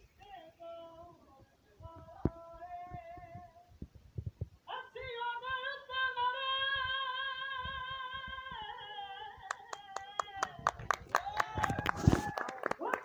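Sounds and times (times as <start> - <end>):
hand claps: 9.5 - 13.0.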